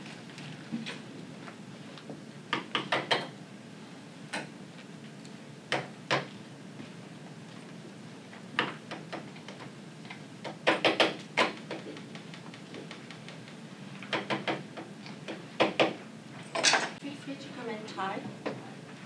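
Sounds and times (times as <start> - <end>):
utensils clinking against bowls: 16.5 - 17.0.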